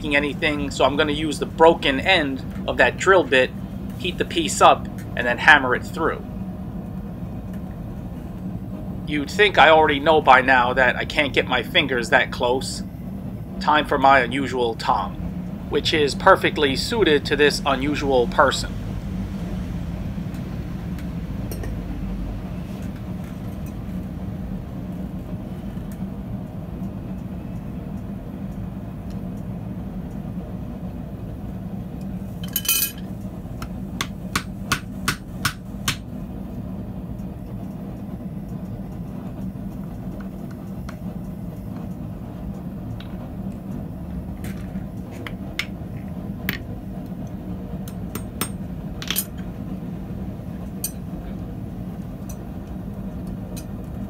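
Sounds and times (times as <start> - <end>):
steady low hum: 0.0 - 54.0
hammer striking steel on anvil: 34.0 - 36.0.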